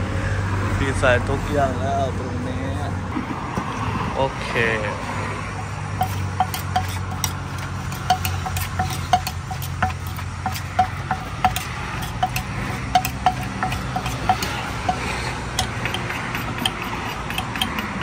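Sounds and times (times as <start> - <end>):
wooden pestle knocking clay mortar: 5.6 - 18.0.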